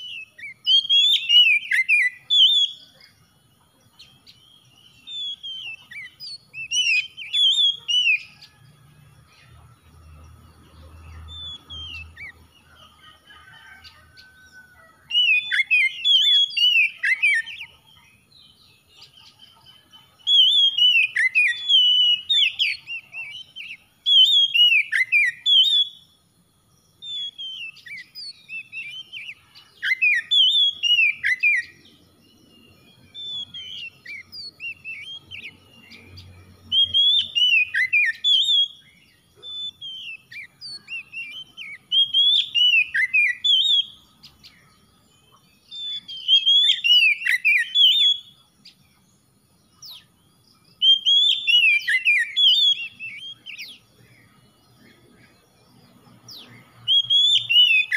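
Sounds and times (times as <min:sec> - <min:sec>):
bird singing whistled phrases: 0:00.0 - 0:03.2, 0:04.0 - 0:08.6, 0:11.2 - 0:12.5, 0:15.0 - 0:26.2, 0:27.0 - 0:31.9, 0:32.6 - 0:44.6, 0:45.2 - 0:48.8, 0:50.8 - 0:54.3, 0:56.3 - 0:57.9.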